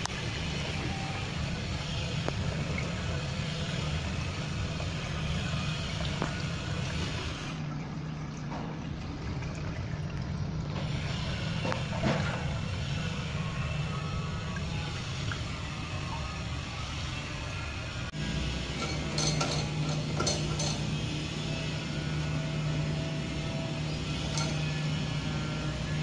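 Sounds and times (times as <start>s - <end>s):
water running into basin: 0.0s - 26.0s.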